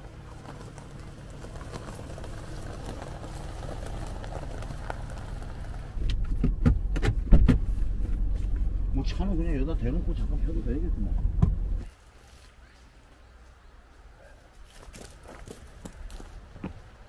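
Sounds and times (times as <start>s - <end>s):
engine and road rumble in cabin: 0.0s - 11.9s
tyres crunching on gravel: 0.0s - 17.0s.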